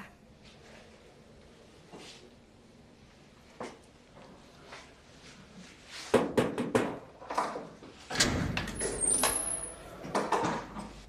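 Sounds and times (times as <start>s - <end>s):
door squeak: 8.2s - 10.0s.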